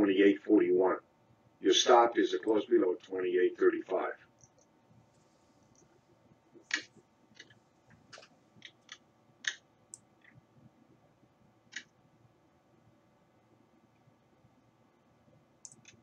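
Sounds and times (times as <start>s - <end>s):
computer mouse clicks: 11.7s - 11.9s, 15.6s - 16.0s.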